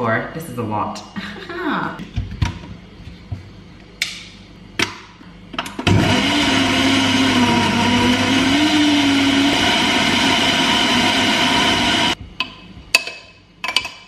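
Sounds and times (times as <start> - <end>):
blender motor running: 5.8 - 12.2.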